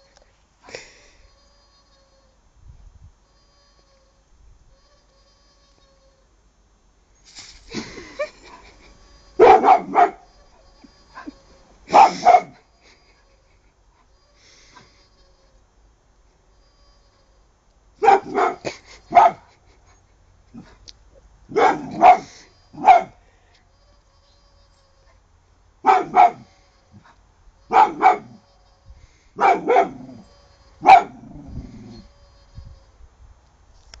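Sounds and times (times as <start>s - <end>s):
puppy barking: 9.4s - 10.2s, 11.9s - 12.6s, 18.0s - 19.5s, 21.5s - 23.2s, 25.8s - 26.5s, 27.7s - 28.4s, 29.4s - 30.1s, 30.8s - 31.2s.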